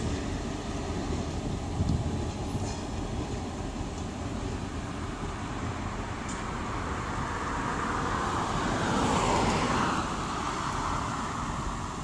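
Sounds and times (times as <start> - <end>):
steady low rumble: 0.0 - 7.6.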